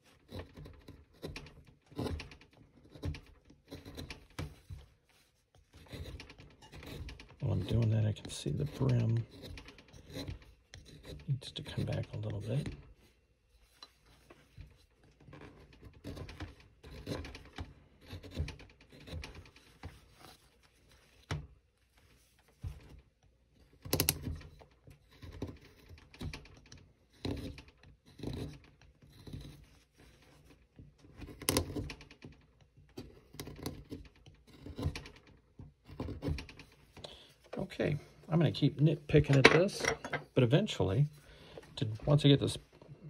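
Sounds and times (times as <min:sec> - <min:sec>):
carving tool cutting wood: 0:00.0 - 0:05.0, 0:05.6 - 0:13.0, 0:14.6 - 0:20.4, 0:23.7 - 0:38.0.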